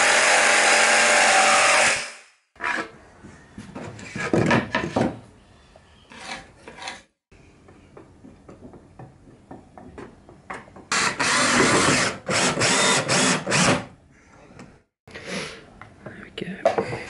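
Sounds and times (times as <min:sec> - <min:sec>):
wood knocks and scrapes: 0:02.6 - 0:05.3
cordless drill driving screws: 0:10.9 - 0:13.8.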